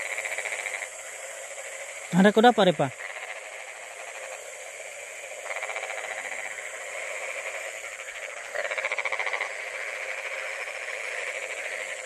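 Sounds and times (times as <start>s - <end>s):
frogs calling in pulsing trill: 0.0s - 12.0s.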